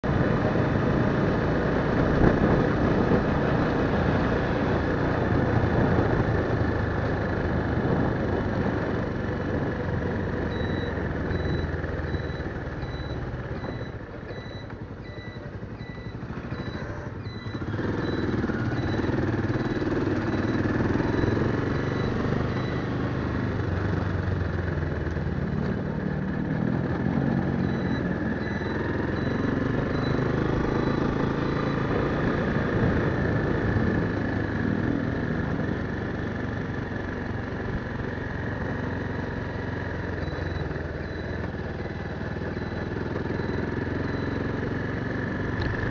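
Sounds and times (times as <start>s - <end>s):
small motorcycle engine running: 0.1s - 45.9s
faint high beeps: 10.0s - 24.0s, 27.0s - 33.3s, 36.7s - 45.6s.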